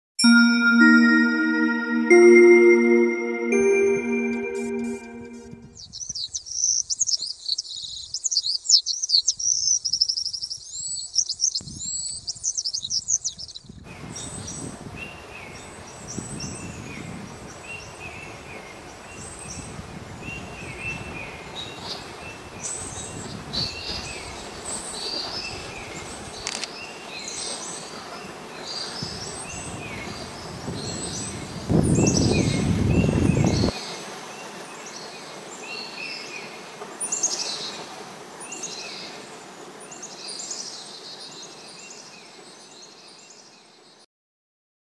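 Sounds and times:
small birds chirping: 5.8s - 14.4s
outdoor background noise: 17.1s - 44.0s.

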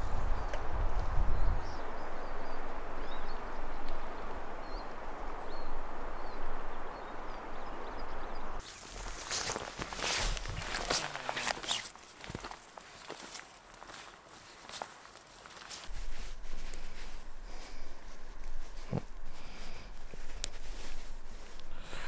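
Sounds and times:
small birds chirping: 0.0s - 15.9s
woodland ambience: 0.0s - 22.0s.

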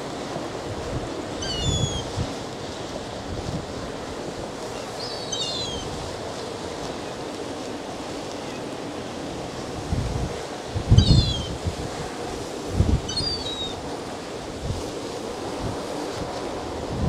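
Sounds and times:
wind buffeting microphone: 0.0s - 7.2s, 9.0s - 17.0s
rush of wind and sea: 0.0s - 17.0s
gulls calling: 1.3s - 2.2s, 4.7s - 6.0s, 11.0s - 11.6s, 13.1s - 13.8s.

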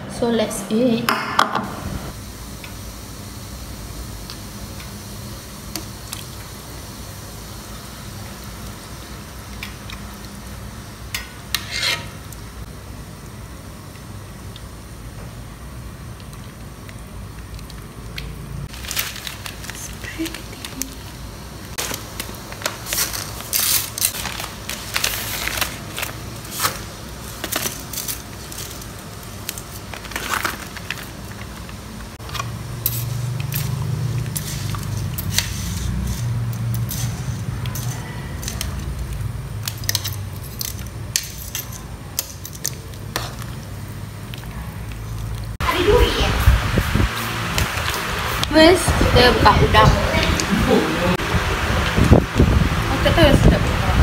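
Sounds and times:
spaghetti and packet crinkling: 18.7s - 21.1s, 21.8s - 31.8s.

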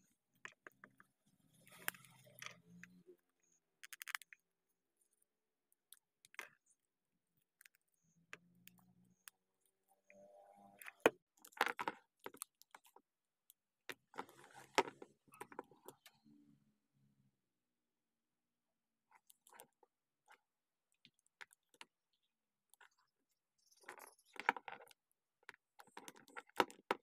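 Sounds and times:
plastic toy parts clicking and rattling: 3.8s - 4.4s, 10.8s - 13.1s, 23.7s - 27.0s.

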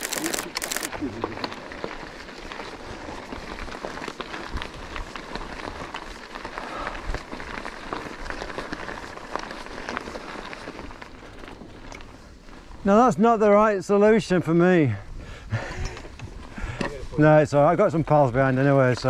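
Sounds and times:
bike clicks and rattles: 0.0s - 12.8s, 15.5s - 17.0s
bike tyres crunching gravel: 0.0s - 19.0s.

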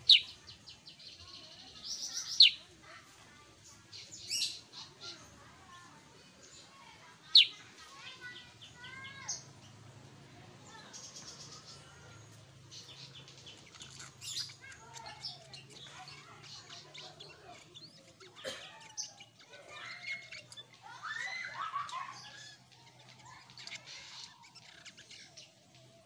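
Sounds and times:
bulbul chirping and warbling: 0.0s - 0.4s, 7.3s - 7.6s.

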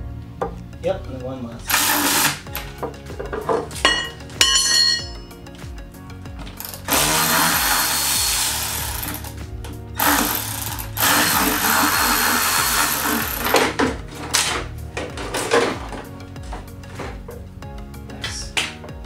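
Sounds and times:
cordless electric ratchet running: 1.7s - 2.5s, 6.6s - 9.4s, 10.0s - 13.8s.

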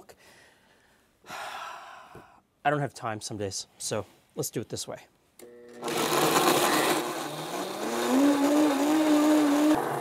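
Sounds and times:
blender motor running: 5.4s - 10.0s.

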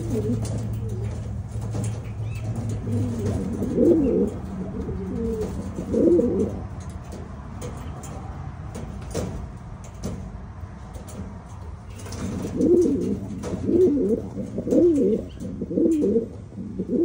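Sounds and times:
pigeons cooing: 0.0s - 8.0s, 11.9s - 17.0s.

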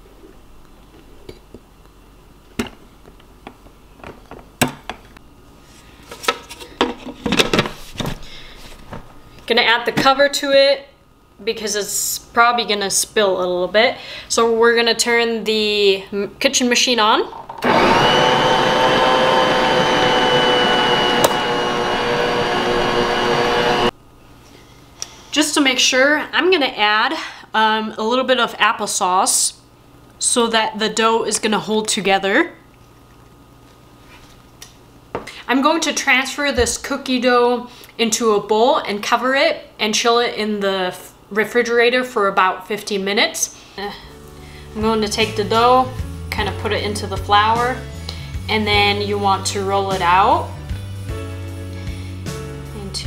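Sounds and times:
mixer motor whining: 17.6s - 23.9s.

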